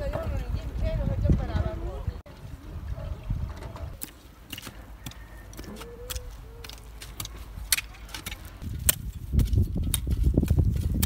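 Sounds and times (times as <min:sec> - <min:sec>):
hoes scraping stony soil: 0:03.4 - 0:11.0.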